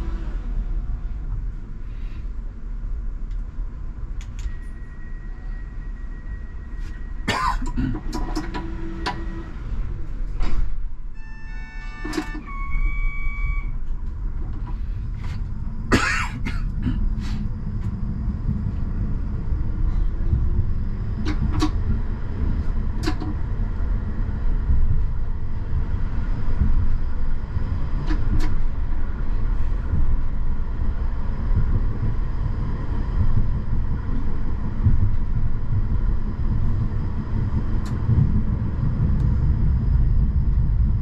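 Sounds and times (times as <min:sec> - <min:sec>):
tram rumbling: 0:00.0 - 0:41.0
electronic chime: 0:11.2 - 0:13.7
sharp clicks and knocks: 0:21.2 - 0:22.0, 0:22.6 - 0:23.4.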